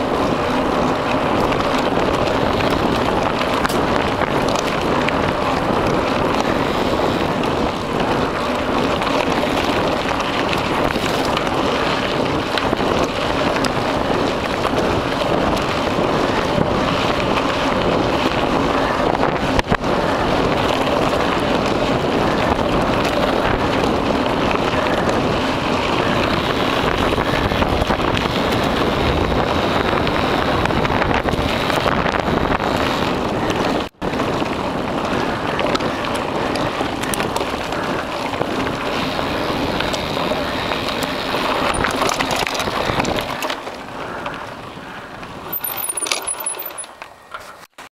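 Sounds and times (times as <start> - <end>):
wind buffeting microphone: 0.0 - 46.6
bike rattling over rough ground: 0.0 - 47.9
bike tyres rumbling on dirt: 0.0 - 47.9.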